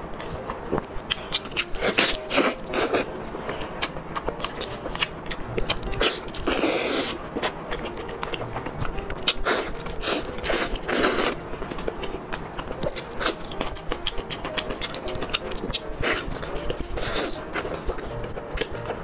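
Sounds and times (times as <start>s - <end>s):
person chewing wetly: 3.8s - 19.0s.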